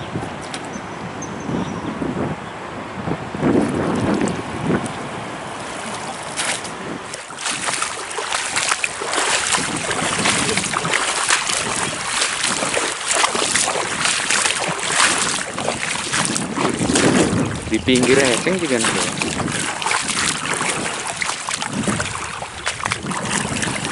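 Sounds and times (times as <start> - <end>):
wind on microphone: 0.0 - 23.9
river water splashing and rushing: 2.6 - 23.9.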